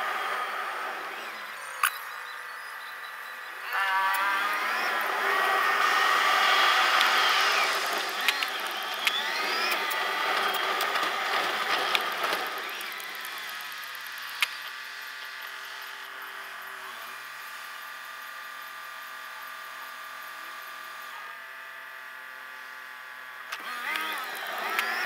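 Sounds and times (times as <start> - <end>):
sharp click: 1.8 - 2.1, 8.2 - 11.0
engine revving up: 3.5 - 14.5.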